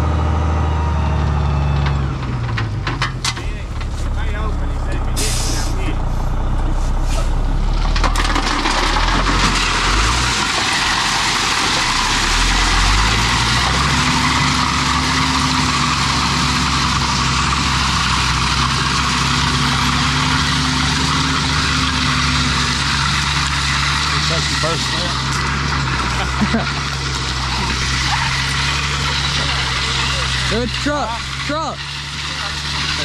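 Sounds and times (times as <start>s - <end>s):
dump truck diesel engine: 0.0s - 33.0s
crushed rock pouring: 7.7s - 33.0s.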